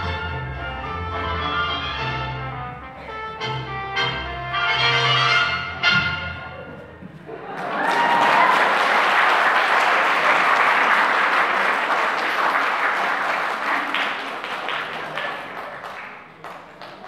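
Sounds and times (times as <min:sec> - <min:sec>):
audience applauding: 0:07.3 - 0:17.0.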